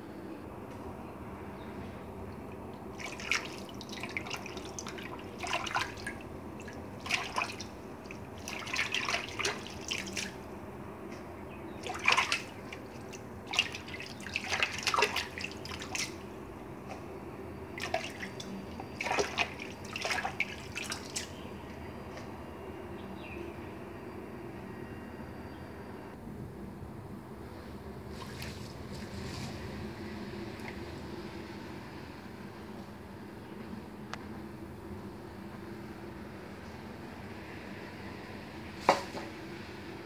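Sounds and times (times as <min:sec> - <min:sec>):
water splashing in a sink: 0:02.8 - 0:10.4, 0:11.8 - 0:16.2, 0:17.8 - 0:21.4.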